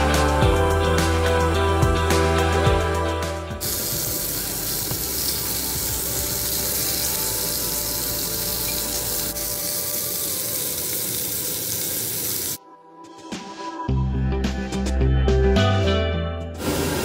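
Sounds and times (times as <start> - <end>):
steak sizzling in grill pan: 3.6 - 12.6.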